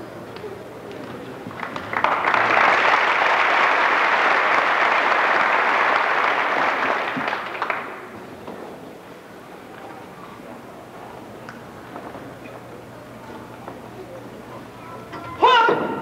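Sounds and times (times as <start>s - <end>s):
audience applauding: 1.5s - 8.1s.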